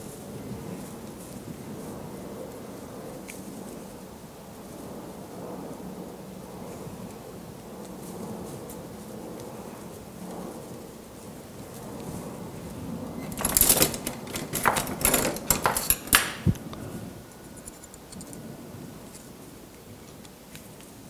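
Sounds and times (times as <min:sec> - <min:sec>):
sharp click: 0:13.3 - 0:16.6.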